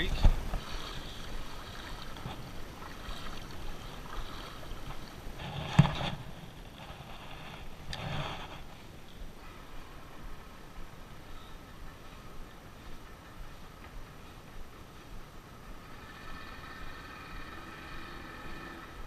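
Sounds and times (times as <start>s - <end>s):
fishing reel whirring: 15.8s - 19.0s.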